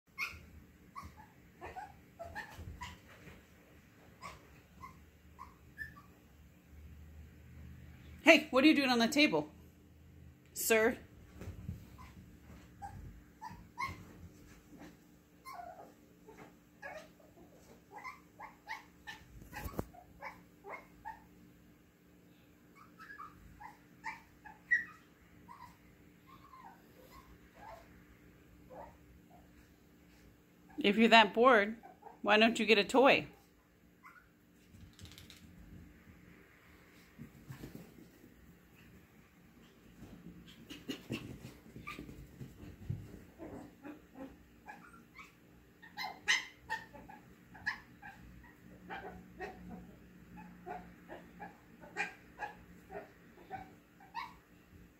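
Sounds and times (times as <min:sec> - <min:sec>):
puppy whimpering and yipping: 0:00.1 - 0:03.3, 0:04.2 - 0:06.2, 0:12.0 - 0:12.2, 0:12.8 - 0:21.3, 0:22.7 - 0:27.9, 0:34.0 - 0:34.4, 0:40.6 - 0:42.4, 0:43.4 - 0:54.5
pet whining: 0:00.1 - 0:06.2, 0:11.4 - 0:21.4, 0:22.7 - 0:28.0, 0:28.6 - 0:30.8, 0:33.4 - 0:35.4, 0:39.6 - 0:54.8.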